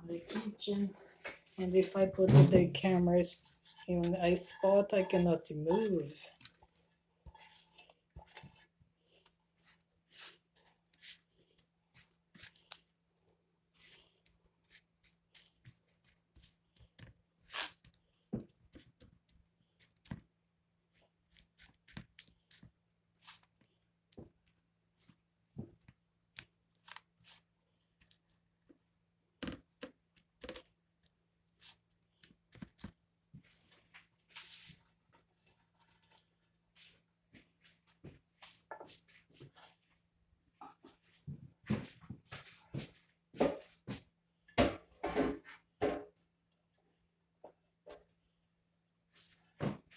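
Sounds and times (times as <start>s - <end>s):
spoon scraping a pot: 3.3s - 6.5s.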